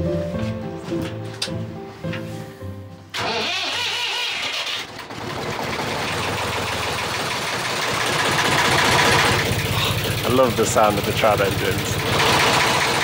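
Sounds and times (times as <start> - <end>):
diesel engine running: 3.1 - 13.0.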